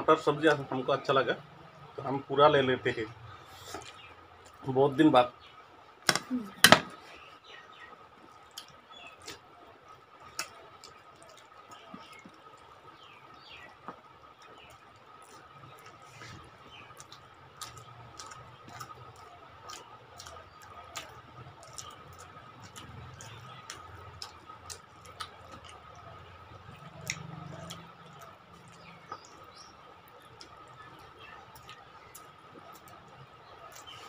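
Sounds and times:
chewing and lip smacks: 0:08.2 - 0:09.5, 0:10.2 - 0:34.0.

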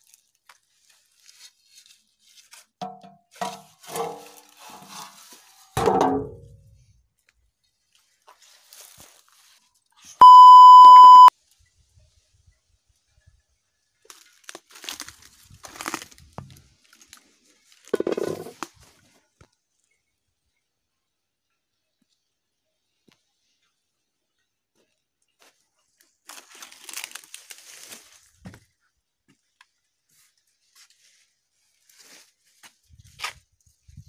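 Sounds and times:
electronic beep: 0:10.2 - 0:11.3
rustles and knocks: 0:17.9 - 0:18.8.

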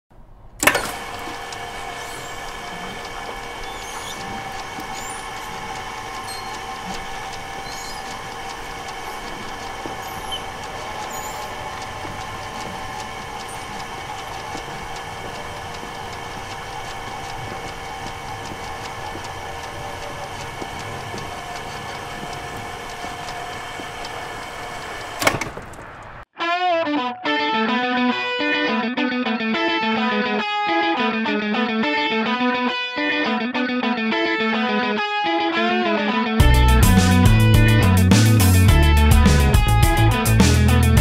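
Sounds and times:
roll-up door clunk: 0:00.6 - 0:26.2
roll-up door motor hum: 0:00.6 - 0:26.3, 0:36.4 - 0:41.0.

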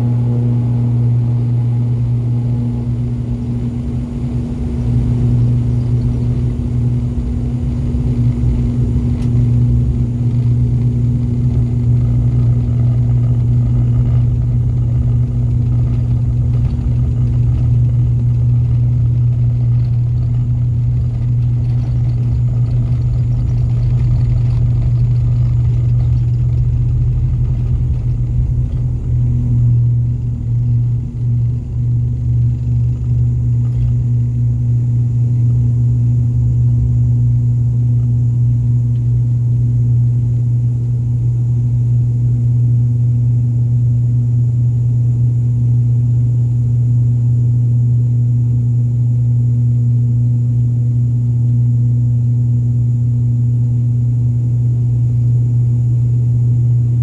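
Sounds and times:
takeoff roll rumble: 0:00.0 - 0:42.5
turboprop engines droning: 0:00.0 - 0:57.0.

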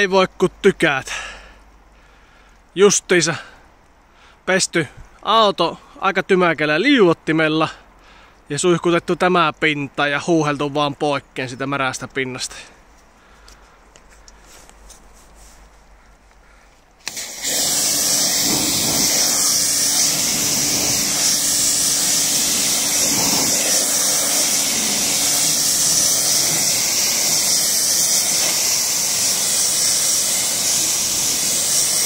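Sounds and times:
water spray hissing: 0:17.0 - 0:32.0.

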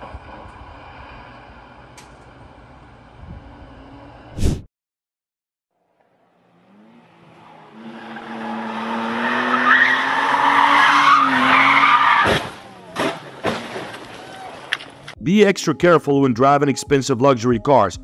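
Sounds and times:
car crash: 0:08.0 - 0:15.2
car tumbling thuds: 0:12.2 - 0:15.0.

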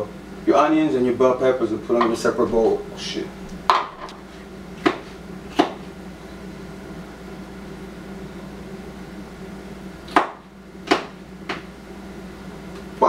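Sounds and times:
kitchen appliance humming: 0:00.0 - 0:13.0
knife chopping on cutting board: 0:04.8 - 0:05.8, 0:10.1 - 0:11.7.

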